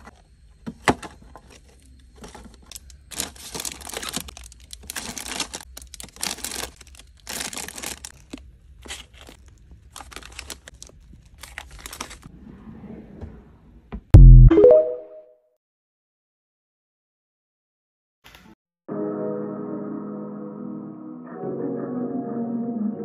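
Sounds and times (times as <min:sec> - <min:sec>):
plastic snack packets crinkling: 0:01.5 - 0:12.3.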